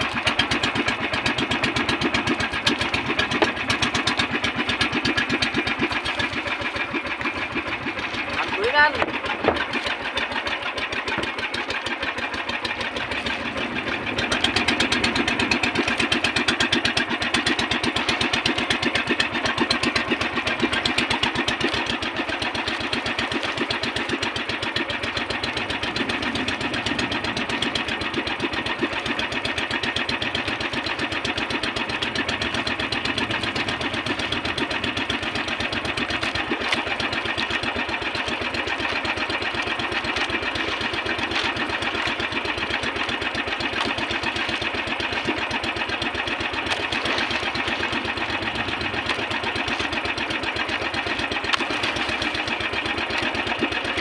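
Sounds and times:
boat engine running: 0:00.0 - 0:54.0.

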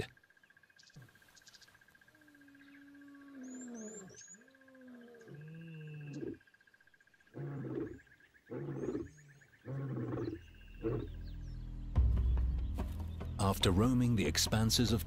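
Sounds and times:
lion grunting: 0:07.3 - 0:11.2
lion roaring: 0:07.3 - 0:11.2.

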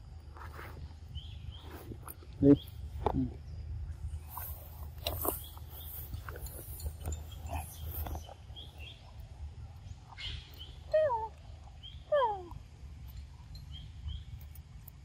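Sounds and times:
monkeys chewing moist clicks: 0:04.3 - 0:12.0.

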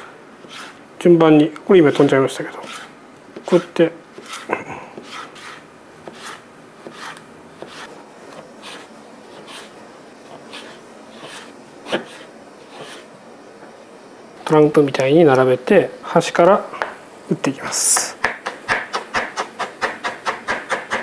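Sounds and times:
knife slicing cucumber on board: 0:01.9 - 0:09.7, 0:10.3 - 0:13.0, 0:18.2 - 0:21.0.

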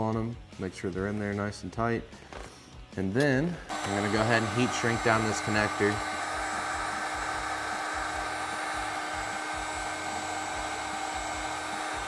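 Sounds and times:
heat gun blowing hot air: 0:03.7 - 0:12.0.

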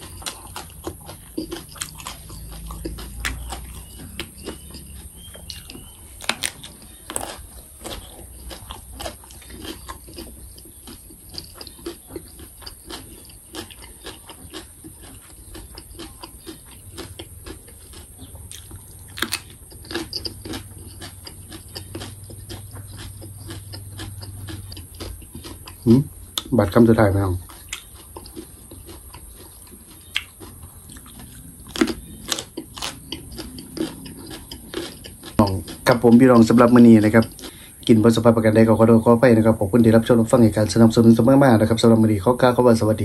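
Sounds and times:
mouth clicks: 0:00.0 - 0:26.6
chewing crunchy vegetable: 0:00.0 - 0:43.0.

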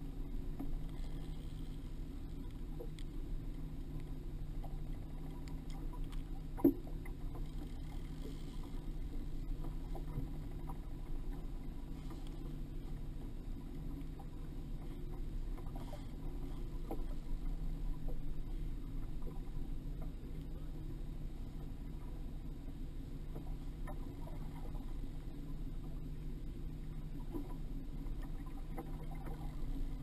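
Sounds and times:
faint clicks and knocks: 0:00.0 - 0:22.3
boat engine rumble: 0:00.0 - 0:30.0.

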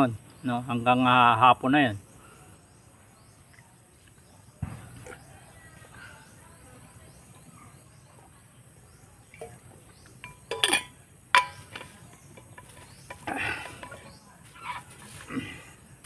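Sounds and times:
insects chirring: 0:06.9 - 0:16.0
rustle of handling: 0:10.6 - 0:15.5.

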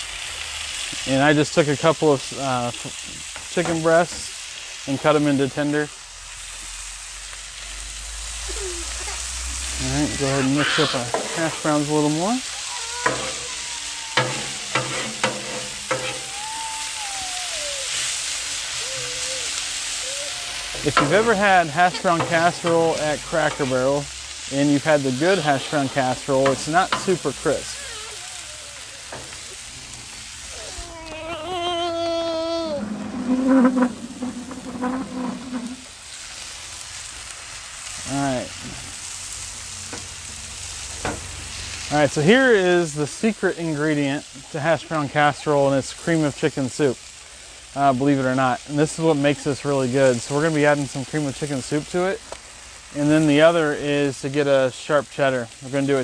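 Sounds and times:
food sizzling on a griddle: 0:00.0 - 0:56.0
metal spatula scraping griddle: 0:09.6 - 0:16.9, 0:17.8 - 0:30.9, 0:32.5 - 0:36.1
voice holding high wavering note: 0:15.9 - 0:21.1.

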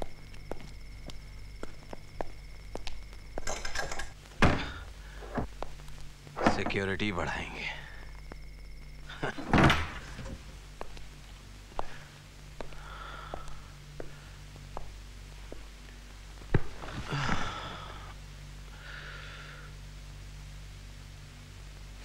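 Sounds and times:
footsteps across a room: 0:00.0 - 0:06.8, 0:10.1 - 0:17.0
low hum: 0:00.0 - 0:22.0
man breathing heavily: 0:04.5 - 0:05.5, 0:11.7 - 0:14.7, 0:16.8 - 0:19.9.

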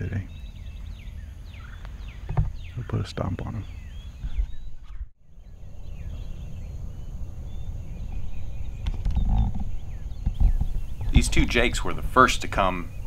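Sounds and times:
songbirds chirping: 0:00.0 - 0:13.0
wind rumbling on microphone: 0:00.0 - 0:13.0.

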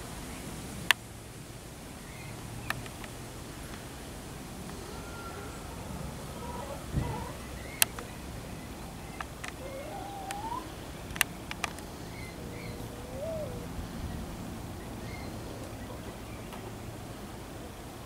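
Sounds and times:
sharp clicks: 0:02.7 - 0:03.2, 0:07.7 - 0:08.1, 0:11.1 - 0:11.9
faint high chirps: 0:04.6 - 0:10.8.

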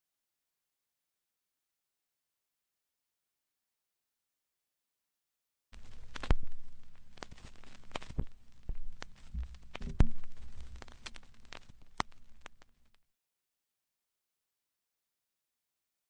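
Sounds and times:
faint hiss: 0:05.8 - 0:12.9
vinyl surface crackle and pops: 0:05.8 - 0:13.1.

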